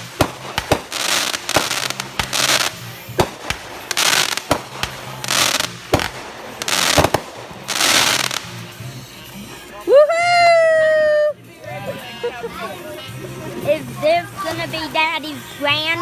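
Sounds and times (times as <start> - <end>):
fireworks popping: 0.0 - 8.8
fireworks crackling hiss: 0.0 - 9.8.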